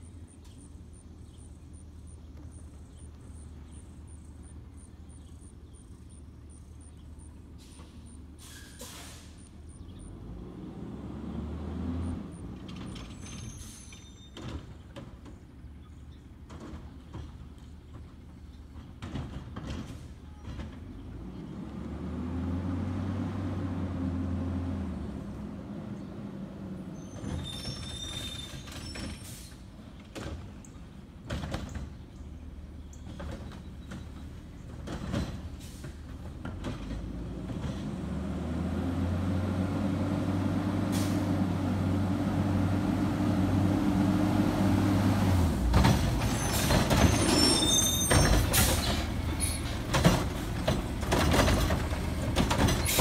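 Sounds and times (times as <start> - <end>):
brakes squealing: 0.0 - 14.8, 19.6 - 30.0, 32.7 - 53.0
garbage truck engine: 0.0 - 15.4, 16.5 - 53.0
high squeal: 13.0 - 14.4, 27.0 - 29.2, 46.3 - 49.7.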